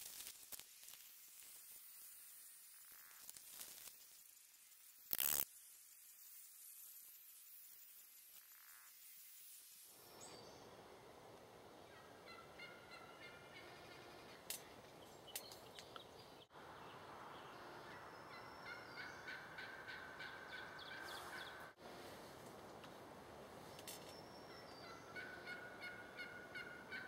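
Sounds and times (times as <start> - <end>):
turkey calling: 11.9 - 14.5, 17.9 - 21.8, 24.5 - 27.0.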